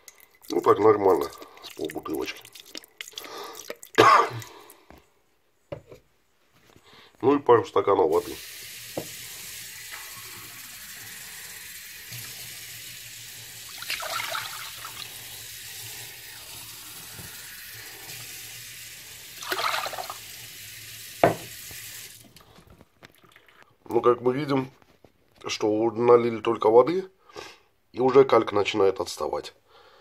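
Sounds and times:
water running from a tap: 0:08.1 - 0:22.4.

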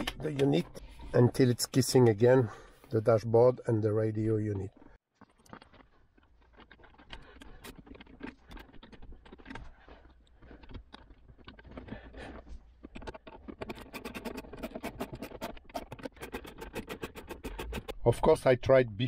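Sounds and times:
plastic trim scraping: 0:11.4 - 0:18.1.

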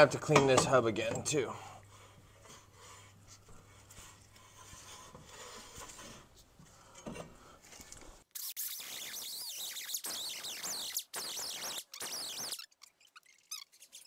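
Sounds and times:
high warbling sound: 0:08.4 - 0:12.7.

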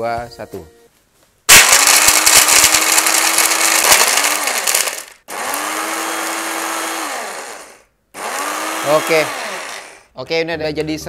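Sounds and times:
blender motor hum: 0:01.5 - 0:10.1.

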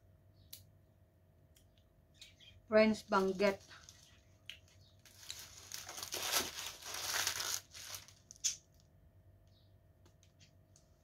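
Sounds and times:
sharp crackle: 0:03.1 - 0:08.8
paper bag crinkling: 0:05.0 - 0:08.4.

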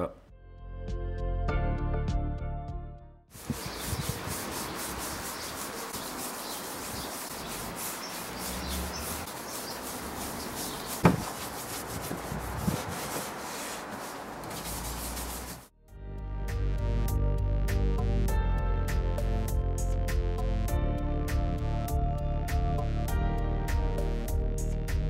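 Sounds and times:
pad rubbing wooden boards: 0:03.4 - 0:15.7
sharp knock: 0:11.0 - 0:11.4.

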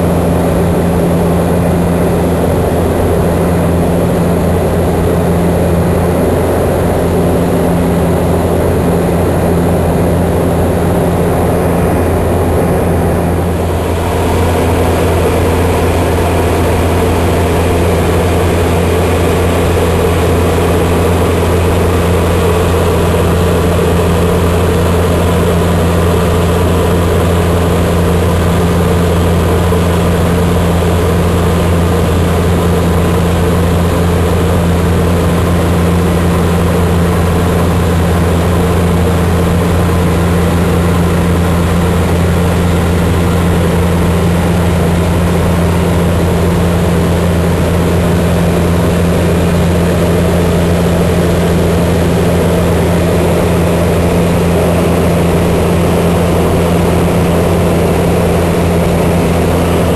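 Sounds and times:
turboprop engine droning in flight: 0:00.0 - 0:59.9.

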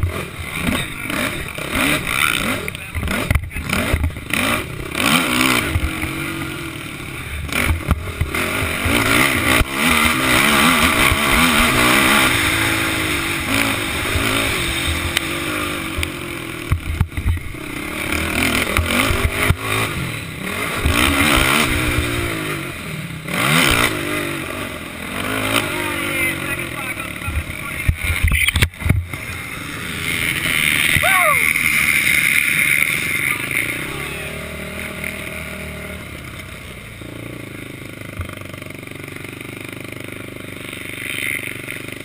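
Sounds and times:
quad engine revving: 0:00.0 - 0:42.0
knocks from rough track: 0:27.8 - 0:29.3.

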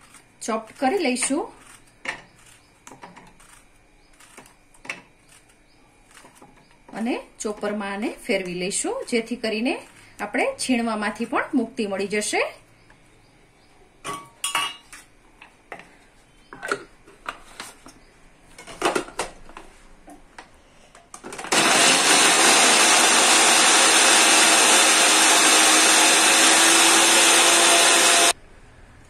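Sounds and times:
electric food chopper motor: 0:21.2 - 0:28.4.

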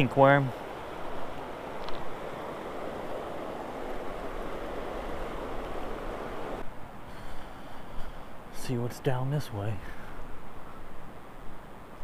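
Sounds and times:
river rushing over rocks: 0:00.0 - 0:06.6.

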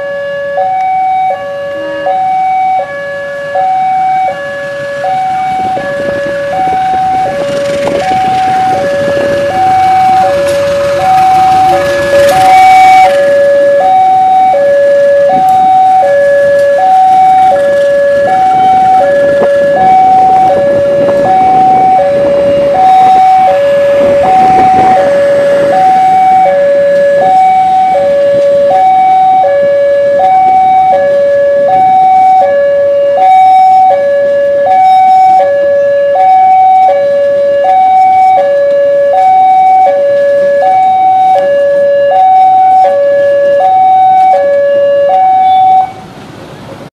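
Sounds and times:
level crossing alarm two-tone: 0:00.0 - 0:46.0
train rumbling past: 0:03.1 - 0:33.2, 0:33.8 - 0:46.9.

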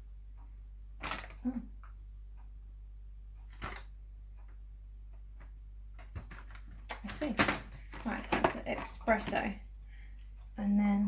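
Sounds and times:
faint low hum: 0:00.0 - 0:11.0
cardboard boxes knocking and rustling: 0:07.3 - 0:09.5.

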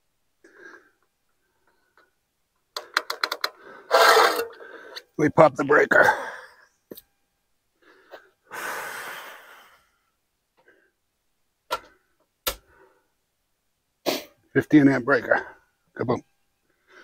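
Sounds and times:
person exhaling: 0:07.9 - 0:10.0.

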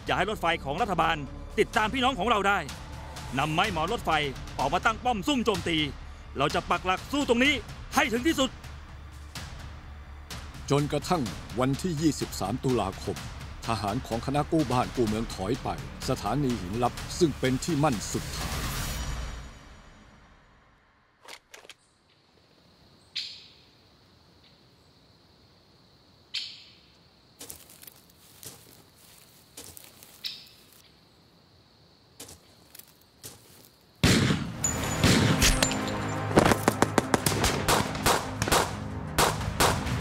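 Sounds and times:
single gunshots with echoes: 0:34.0 - 0:35.7, 0:36.4 - 0:40.0
rapid rifle and machine-gun fire: 0:36.4 - 0:40.0.

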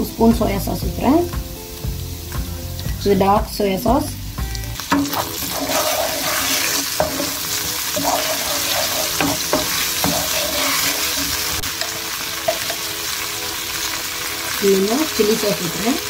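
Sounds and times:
food sizzling in hot oil: 0:00.0 - 0:16.0
wooden spoon scraping pan: 0:05.1 - 0:11.5.

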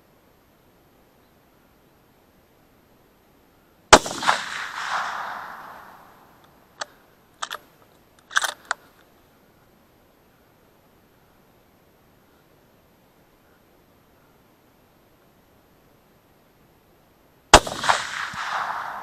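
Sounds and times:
rifle shot with echo: 0:03.9 - 0:06.4, 0:17.5 - 0:19.0
rifle action metallic clicks: 0:04.3 - 0:09.1.

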